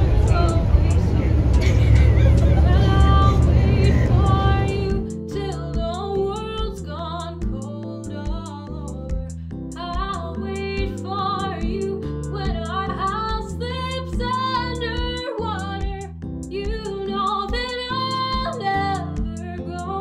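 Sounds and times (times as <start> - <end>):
woman singing over a beat: 0.0 - 20.0.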